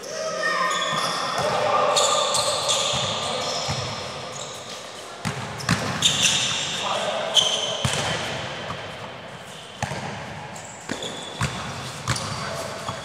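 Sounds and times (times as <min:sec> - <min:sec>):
shoe squeaks on court: 0:00.7 - 0:08.0, 0:09.5 - 0:13.0
basketballs bouncing on gym floor: 0:02.8 - 0:03.9, 0:05.2 - 0:06.3, 0:07.8 - 0:08.9, 0:09.8 - 0:13.0.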